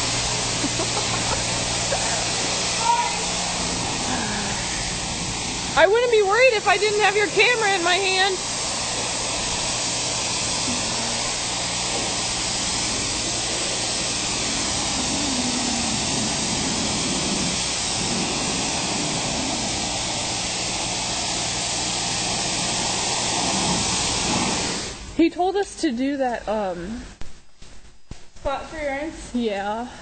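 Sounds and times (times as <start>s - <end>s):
pressure washer water spray: 0.0s - 25.2s
low hum: 0.0s - 25.3s.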